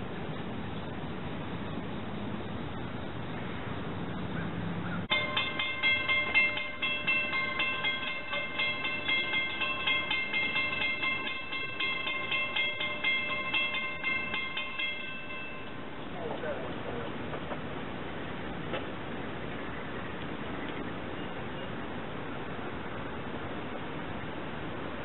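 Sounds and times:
low rumble of road traffic: 0.0s - 25.0s
railroad crossing bell ringing: 5.1s - 16.9s.

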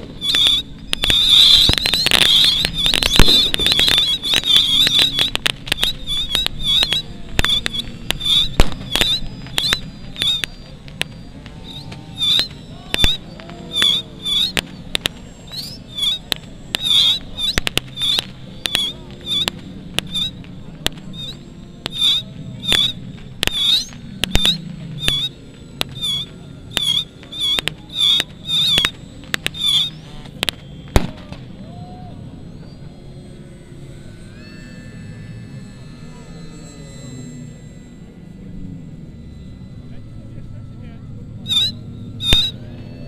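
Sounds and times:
model aircraft engines droning: 0.0s - 43.0s
high squawking chirps: 0.1s - 31.2s, 41.4s - 42.6s.

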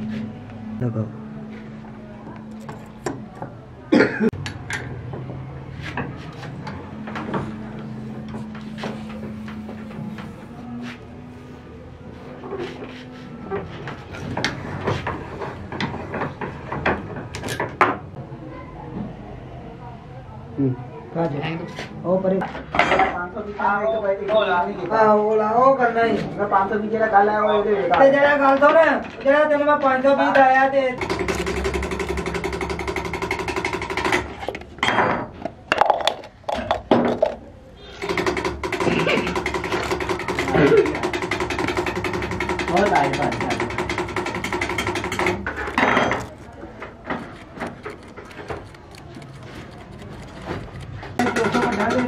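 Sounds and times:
small machine rattling and humming: 31.0s - 34.6s, 37.9s - 46.4s, 47.4s - 52.0s.

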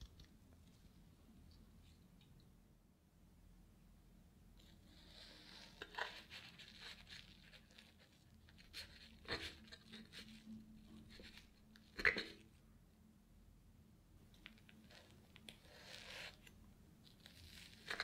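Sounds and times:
sponge cake tearing: 4.6s - 12.6s, 14.4s - 18.0s.

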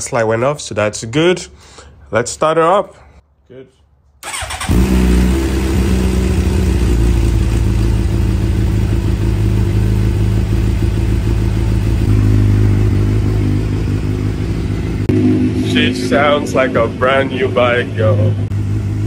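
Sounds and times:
motorcycle engine idling: 4.2s - 19.0s.

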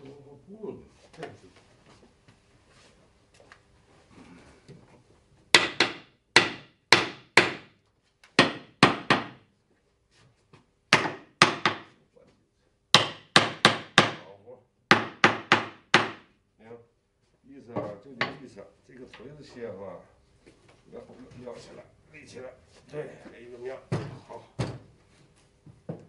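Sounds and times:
hammer striking wooden frame: 5.5s - 9.5s, 10.9s - 12.0s, 12.9s - 14.3s, 14.9s - 16.3s.

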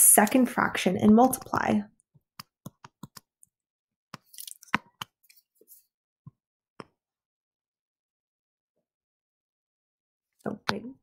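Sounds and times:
stylus tapping on tablet screen: 2.4s - 3.3s.

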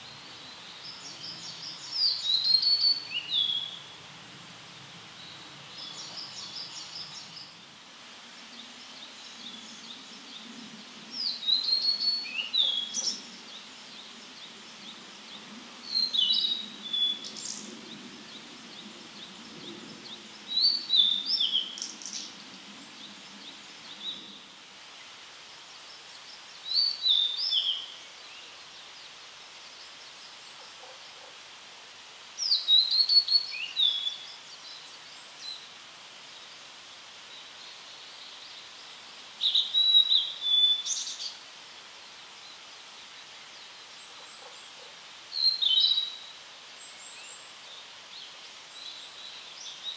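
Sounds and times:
bird singing whistled notes: 0.9s - 3.8s, 11.2s - 13.2s, 20.5s - 22.2s, 32.4s - 34.4s, 39.4s - 41.3s, 45.3s - 46.3s.

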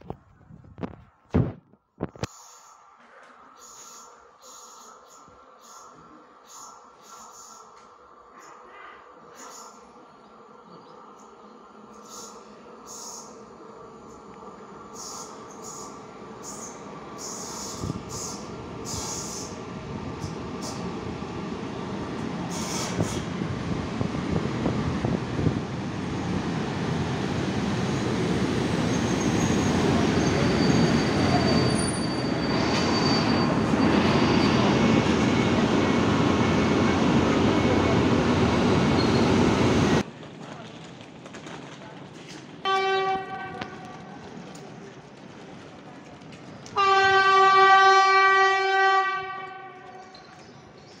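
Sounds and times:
train wheels rumbling on rail: 11.9s - 51.0s
high squealing wheels or brakes: 14.9s - 19.6s, 27.9s - 39.7s, 50.0s - 51.0s
locomotive horn blast: 42.7s - 44.0s, 46.8s - 50.1s.

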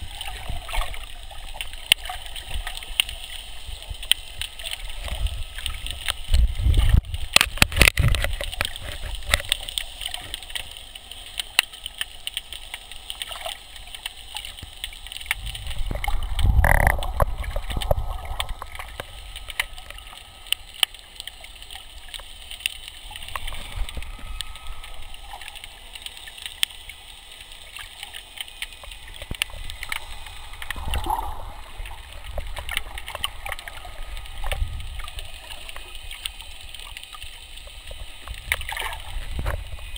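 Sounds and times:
gurgling rush of bubbles: 0.0s - 10.8s, 13.2s - 26.6s, 27.6s - 39.9s
underwater clicks and crackles: 0.0s - 39.9s
steady hiss: 8.4s - 39.9s.

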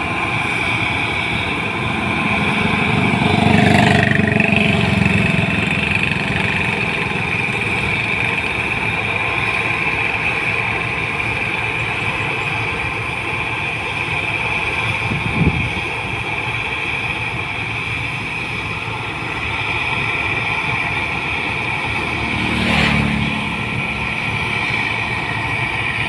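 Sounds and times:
combine harvester engine and threshing: 0.0s - 26.0s
high whine: 0.0s - 26.0s.

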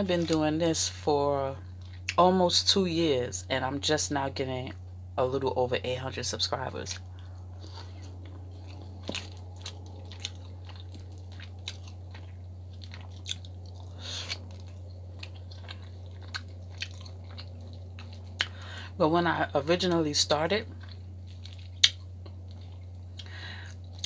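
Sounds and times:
low electrical hum: 0.0s - 24.0s
person chewing wetly: 7.1s - 18.7s, 20.7s - 24.0s.

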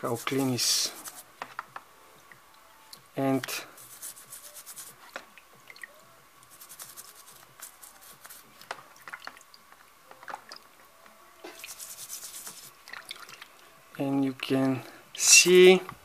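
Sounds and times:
light wet sounds: 0.0s - 1.3s, 2.2s - 15.3s
toothbrush scrubbing metal screen: 0.0s - 1.3s, 3.4s - 5.0s, 6.4s - 8.5s, 11.5s - 12.8s.

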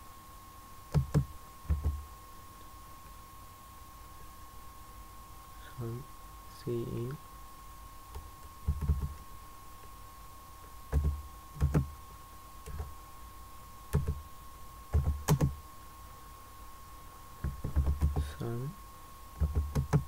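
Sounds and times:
faint steady tone: 0.0s - 20.0s
slow keyboard typing: 0.9s - 2.0s, 8.1s - 9.2s, 10.9s - 11.9s, 12.6s - 12.9s, 13.9s - 14.2s, 14.9s - 15.6s, 17.4s - 18.4s, 19.4s - 20.0s.

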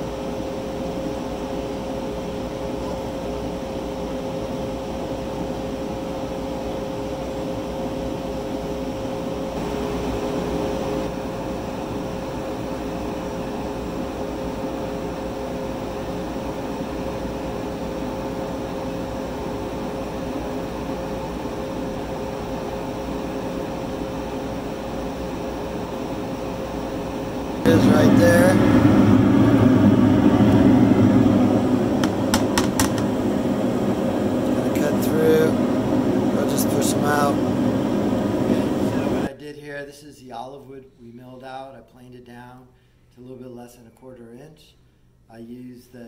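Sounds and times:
laser cutter humming and hissing: 0.0s - 39.3s.

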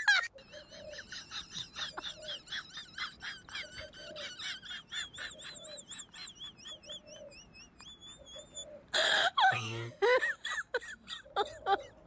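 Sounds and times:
small birds chirping: 0.1s - 10.1s
dove cooing: 0.4s - 2.6s, 3.4s - 7.4s, 8.2s - 8.9s.

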